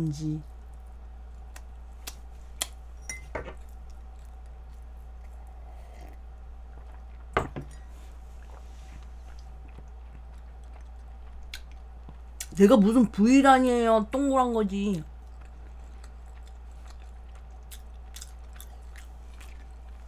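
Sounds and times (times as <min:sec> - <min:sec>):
low electrical hum: 0:00.0 - 0:20.0
glass mug clinking: 0:03.0 - 0:03.5.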